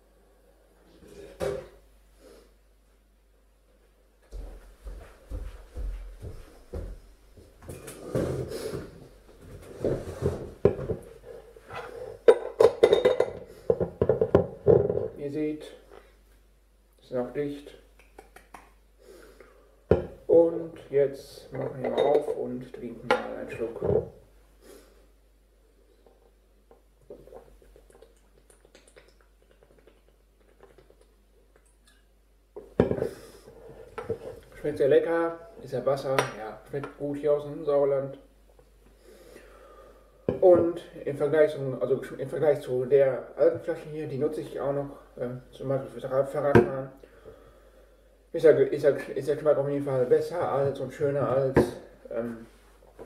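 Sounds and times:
person swallowing water: 26.7 - 32.0.

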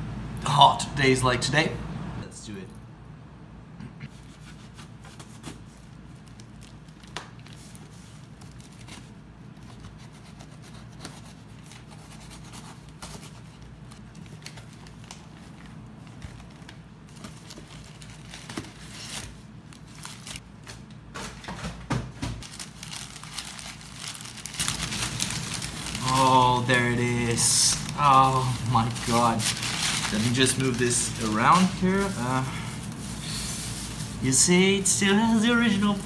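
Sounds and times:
packing paper rustling: 4.4 - 21.4, 22.4 - 36.0
tape tearing: 22.4 - 33.6.

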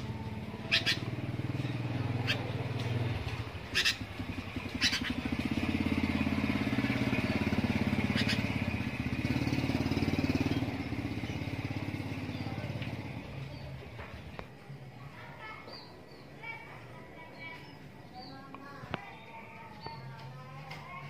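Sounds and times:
engine running: 0.0 - 14.4.

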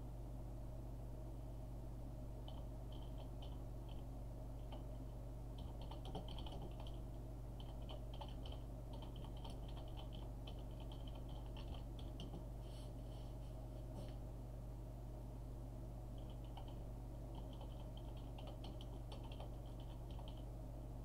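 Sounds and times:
faint low hum: 0.0 - 21.0
keyboard keys clicking: 5.6 - 7.0, 7.6 - 12.4, 16.2 - 16.8, 17.4 - 20.4.

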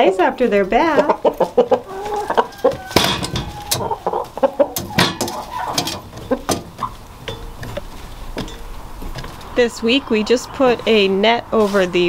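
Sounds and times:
chickens clucking: 0.0 - 12.0
clicks and taps on metal feeder: 2.7 - 3.9, 4.7 - 9.4.

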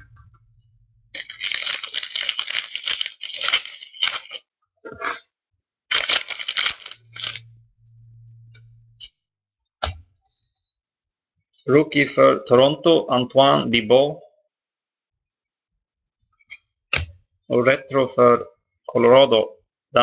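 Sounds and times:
wrapper tearing and crinkling: 1.2 - 4.4, 5.9 - 7.5
faint low hum: 7.0 - 9.1.

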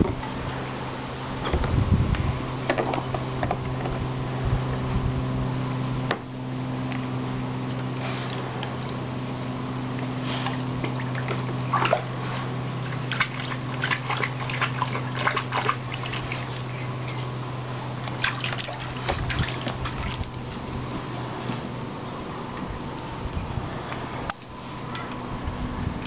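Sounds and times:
low hum: 0.0 - 26.0
dog lapping and splashing water: 7.6 - 21.0.

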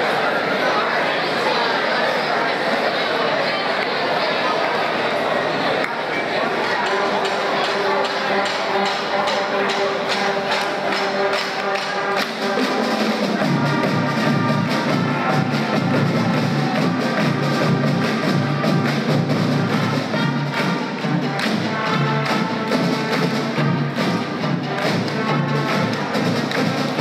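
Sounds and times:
music with brass and percussion: 6.7 - 27.0.

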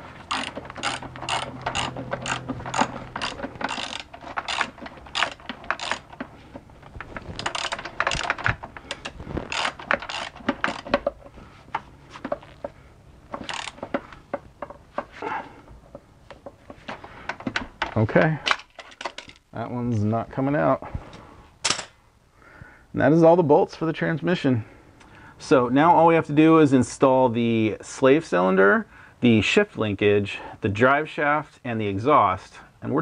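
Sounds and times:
hand ratchet clicking: 0.0 - 11.3, 12.3 - 14.4.

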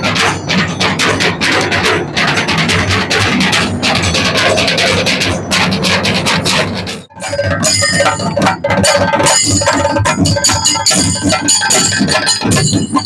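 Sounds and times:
drums beaten with sticks: 0.0 - 13.0
hand cymbals ringing: 7.1 - 13.0.

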